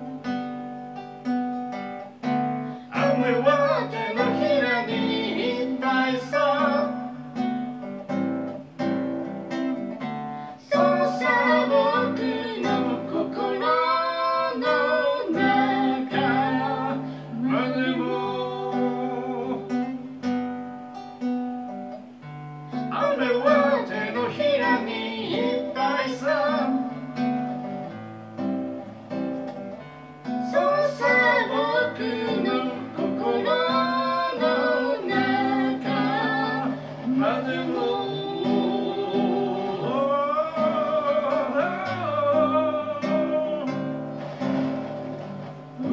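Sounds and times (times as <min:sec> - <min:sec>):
acoustic guitar: 0:00.0 - 0:45.9
man singing: 0:02.9 - 0:07.2, 0:10.6 - 0:20.1, 0:22.9 - 0:27.0, 0:30.5 - 0:44.0.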